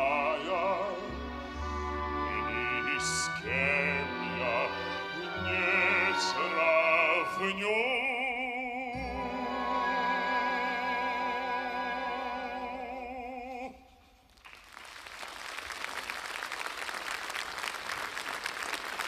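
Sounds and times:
baritone singing with vibrato: 0.0 - 14.0
audience applauding: 14.4 - 19.0.

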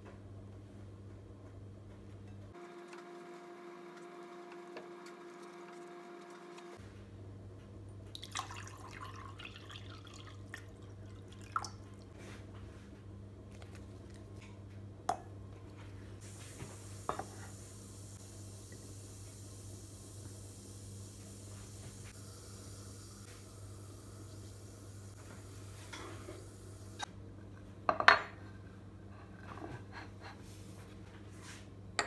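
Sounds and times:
faint steady hum: 0.0 - 32.0
water pouring into a glass: 8.2 - 11.9
faint hiss: 16.2 - 27.1.

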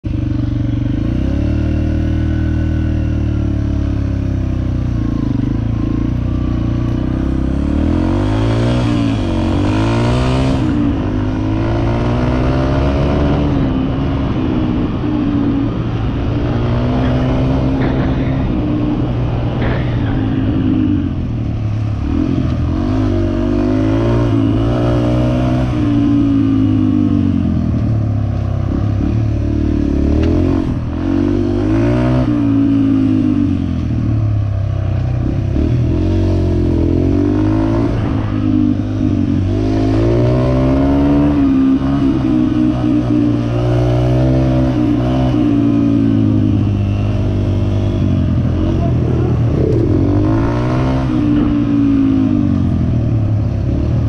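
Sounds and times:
dirt bike engine revving: 7.0 - 27.3, 35.2 - 54.0.

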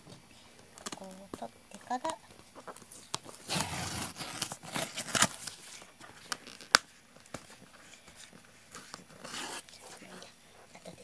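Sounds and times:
cardboard ripping: 3.4 - 5.6.

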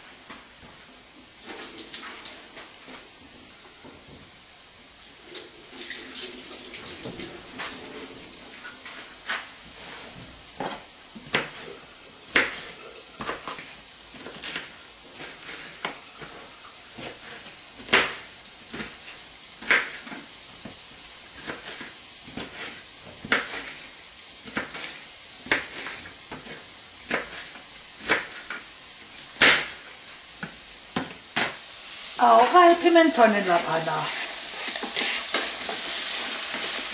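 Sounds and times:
vegetables sizzling in oil: 0.0 - 36.9
knife chopping on cutting board: 10.6 - 11.7, 12.3 - 13.6, 21.4 - 23.8, 24.4 - 28.6.

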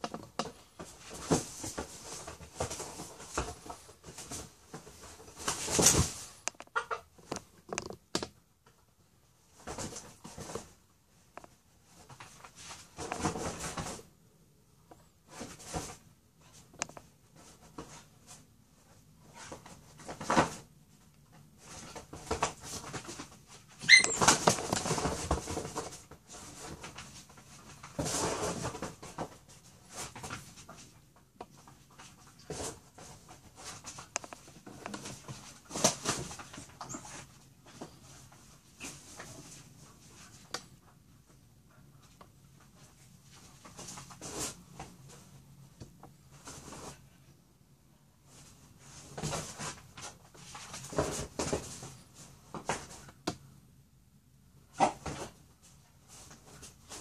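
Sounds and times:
animals scuffling: 0.4 - 6.4, 17.3 - 40.4
high-pitched animal cry: 23.8 - 24.2.

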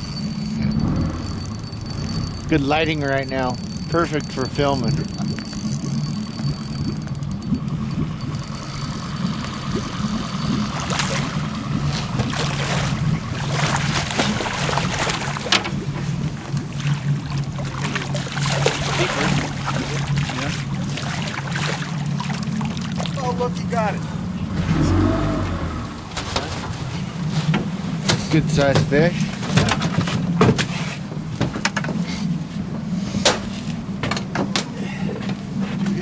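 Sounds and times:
boat motor idling: 0.0 - 30.4
fish splashing at surface: 10.5 - 23.2.

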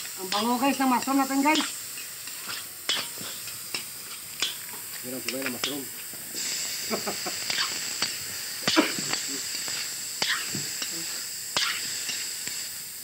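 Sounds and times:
vegetables sizzling in oil: 0.0 - 13.0
metal spatula scraping wok: 0.3 - 4.6.

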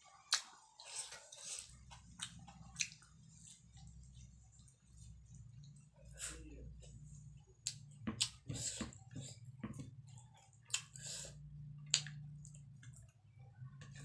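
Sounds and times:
wet chewing and lip smacking: 0.2 - 5.0, 10.1 - 11.0, 11.8 - 13.2.

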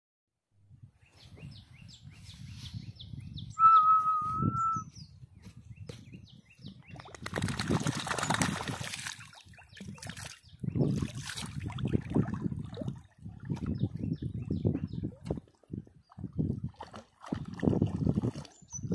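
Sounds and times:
small birds chirping: 1.0 - 11.3
steady whistled note: 3.6 - 4.9
water sloshing and splashing: 6.9 - 14.1, 14.7 - 18.9.

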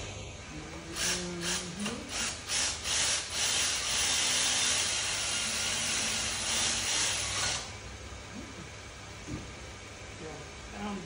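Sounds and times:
compressed air hissing from blow gun: 1.0 - 7.7.

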